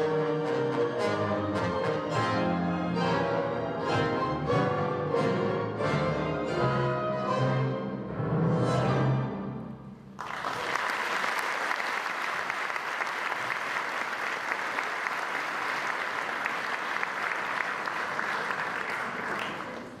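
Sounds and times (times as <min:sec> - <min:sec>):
audience applause: 0:10.2 - 0:20.0.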